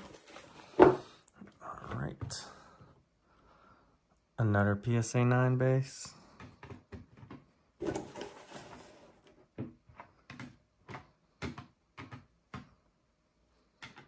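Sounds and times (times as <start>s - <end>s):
plastic scraping rustle: 0.0s - 1.0s, 7.8s - 9.2s.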